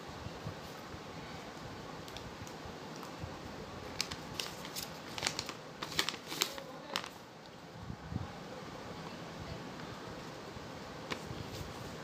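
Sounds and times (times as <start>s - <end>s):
low background hiss: 0.0s - 12.0s
paper crackling: 3.9s - 7.2s.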